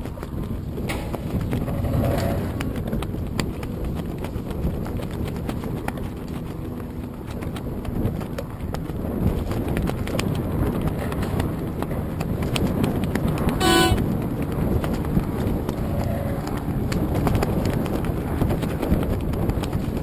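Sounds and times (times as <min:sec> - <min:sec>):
wind rumbling on microphone: 0:00.0 - 0:20.0
water slapping against hull: 0:02.4 - 0:13.6
horn toot: 0:13.6 - 0:14.0.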